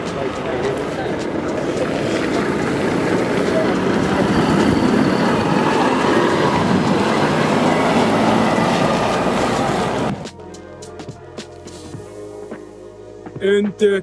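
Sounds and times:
truck driving past: 0.0 - 12.3
background music: 5.9 - 14.0.

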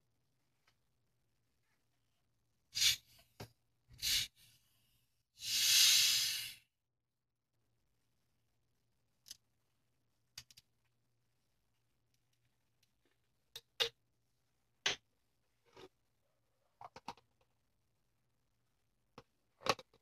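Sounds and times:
carbonation gas hissing: 2.8 - 3.1, 4.0 - 4.4, 5.4 - 6.7.

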